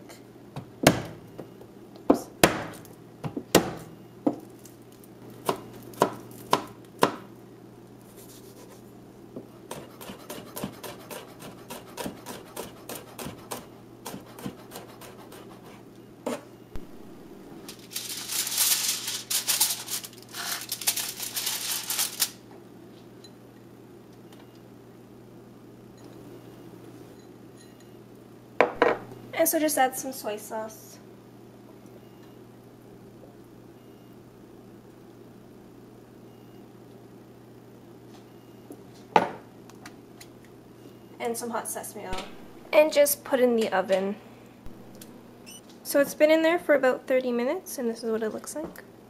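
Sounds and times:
knife chopping on plastic board: 5.4 - 7.3, 9.7 - 15.5
crackly rustling: 17.5 - 22.4.

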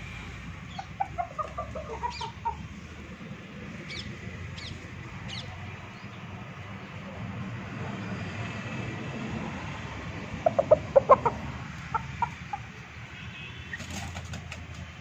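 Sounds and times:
rooster clucking: 0.0 - 3.1, 10.3 - 12.8.

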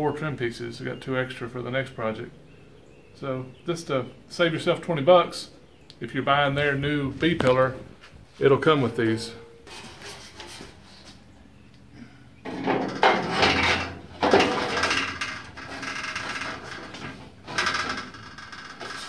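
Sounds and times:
sheet metal rattling and scraping: 12.4 - 19.0.

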